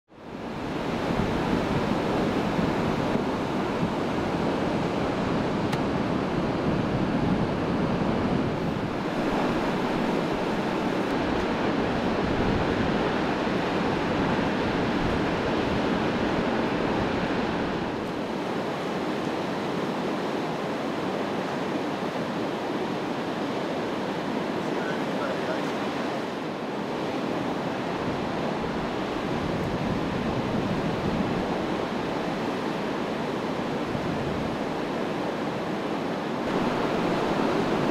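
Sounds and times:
waterfall rushing: 0:08.6 - 0:14.6, 0:23.3 - 0:26.7, 0:36.0 - 0:37.9.

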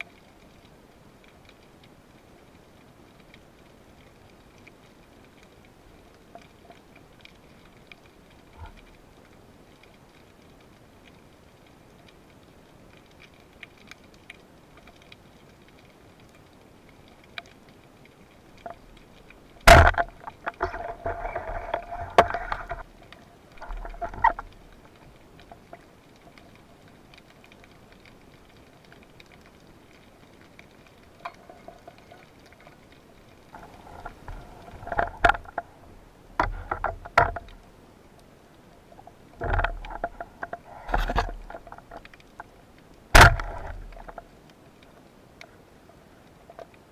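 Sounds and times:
bubbling and rushing water: 0:00.0 - 0:46.9
faint ticks: 0:00.0 - 0:46.9
sharp click underwater: 0:19.6 - 0:22.9, 0:43.1 - 0:44.2.

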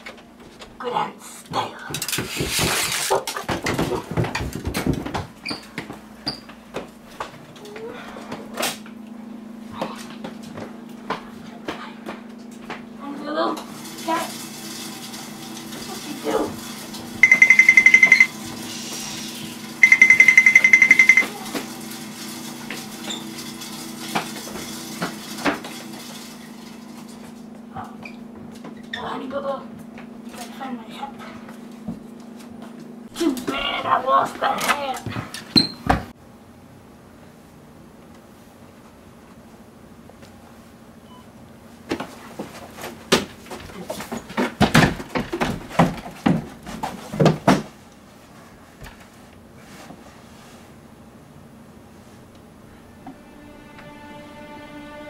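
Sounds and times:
scuffle knocks and thuds: 0:02.2 - 0:06.0, 0:41.9 - 0:47.8
rapid electronic beeping: 0:17.2 - 0:18.3, 0:19.8 - 0:21.3.

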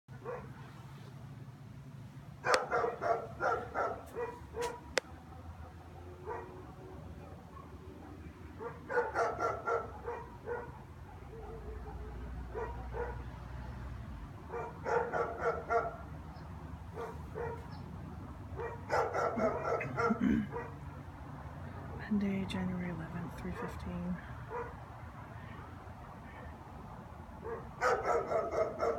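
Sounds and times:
dog barking: 0:00.1 - 0:00.7, 0:02.4 - 0:13.3, 0:14.5 - 0:16.1, 0:16.9 - 0:17.8, 0:18.6 - 0:20.8, 0:24.5 - 0:24.8, 0:27.4 - 0:28.9.

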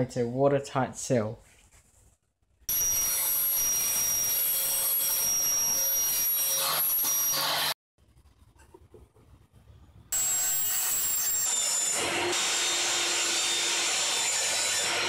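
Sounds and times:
table saw whining: 0:02.7 - 0:07.8, 0:10.2 - 0:15.0.

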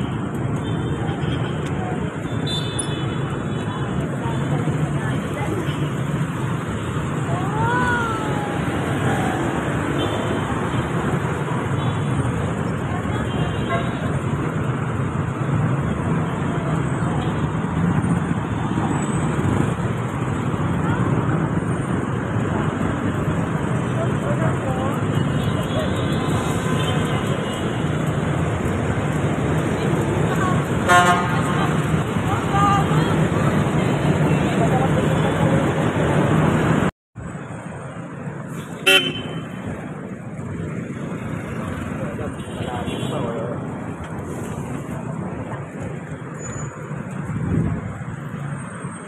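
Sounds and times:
road traffic on wet street: 0:00.0 - 0:49.0
car horn toot: 0:30.9 - 0:31.3, 0:38.8 - 0:39.4.

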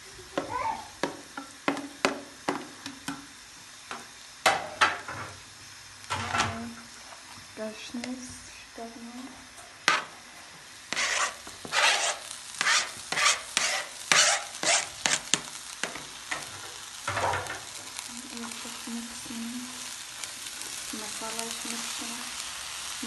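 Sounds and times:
oil sizzling in pan: 0:00.0 - 0:23.0
knife scraping cutting board: 0:10.9 - 0:15.2
spatula stirring: 0:10.9 - 0:16.5.

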